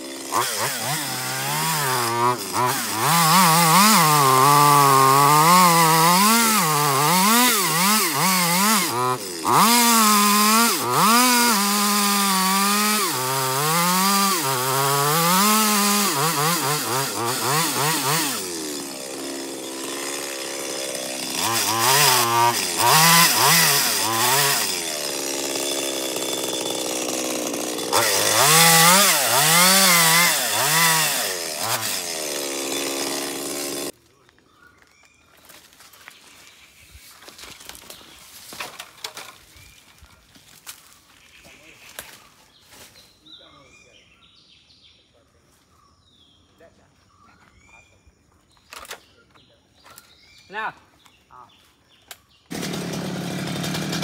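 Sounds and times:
chainsaw cutting wood: 0.0 - 34.0, 52.5 - 54.0.

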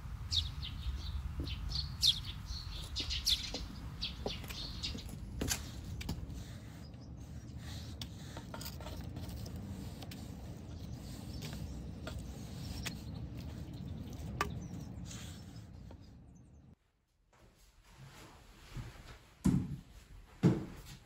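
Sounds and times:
steady low rumble: 0.0 - 16.8.

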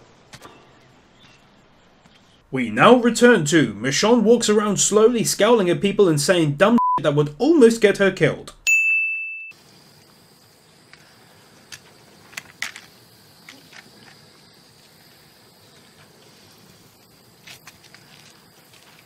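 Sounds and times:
high insect drone: 9.5 - 19.0.

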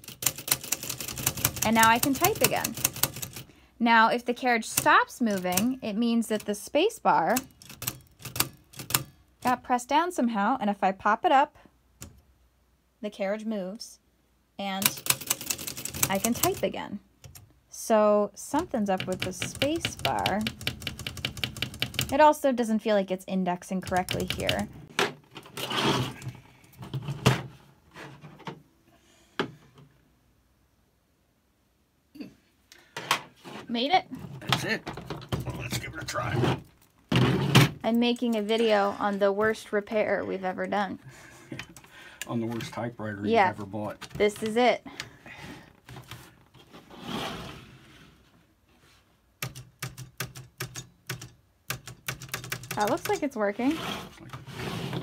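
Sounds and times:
typewriter clicks and clunks: 0.0 - 3.5, 4.7 - 5.8, 7.4 - 9.2, 14.8 - 16.6, 18.9 - 22.2, 49.4 - 53.3.

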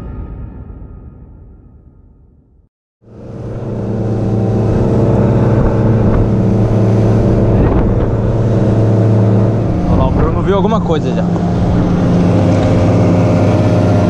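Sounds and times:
boat engine drone: 3.0 - 14.0
rushing wind and water: 3.4 - 14.0.

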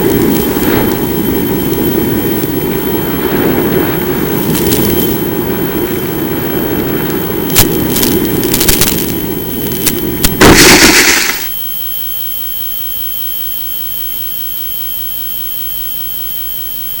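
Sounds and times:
faint hiss: 0.0 - 11.5
rushing flight noise: 0.0 - 11.5
thin high whine: 0.0 - 17.0.

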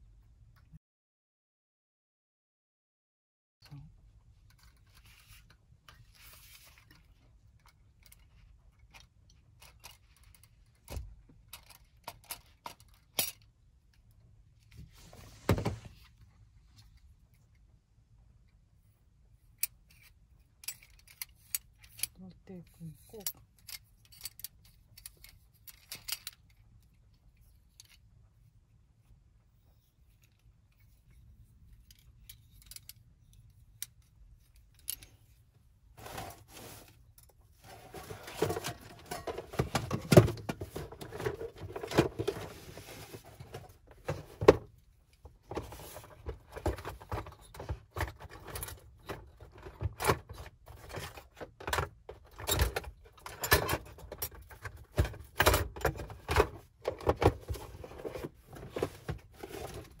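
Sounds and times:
metal parts clinking and rattling: 7.6 - 13.5, 19.6 - 28.1, 30.1 - 35.4, 37.1 - 44.4, 45.6 - 60.0.

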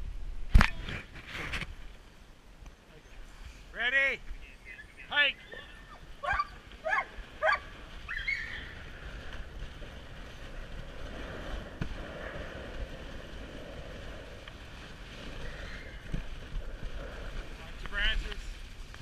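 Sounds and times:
sled runners hissing over snow: 2.9 - 19.0
wind on microphone: 5.5 - 19.0
dogs yelping: 6.2 - 8.8.

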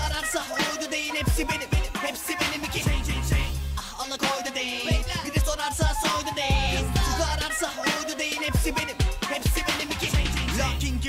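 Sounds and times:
bass line: 0.0 - 0.5, 2.4 - 3.8, 4.9 - 7.7, 8.5 - 11.0
man rapping over a beat: 0.0 - 11.0
kick drums: 1.3 - 2.0, 4.9 - 7.2, 8.6 - 10.4.

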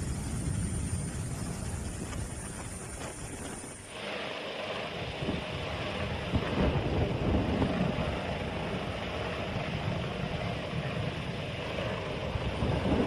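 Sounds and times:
wind buffeting microphone: 0.0 - 4.1, 4.8 - 13.0
helicopter hovering: 0.0 - 13.0.

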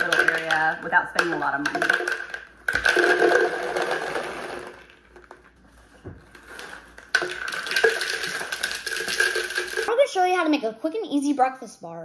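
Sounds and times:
cereal pouring into plastic jar: 1.6 - 5.4, 6.3 - 10.0.

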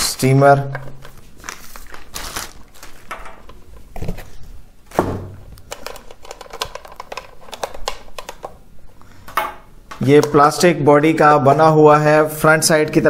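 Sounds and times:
plastic inhaler being handled: 5.5 - 10.4.

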